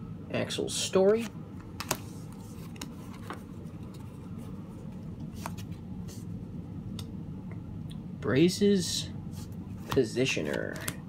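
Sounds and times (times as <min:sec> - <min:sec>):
steady low hum: 0:00.0 - 0:11.0
cards clicking and sliding: 0:01.0 - 0:04.2, 0:05.2 - 0:06.2, 0:09.4 - 0:11.0.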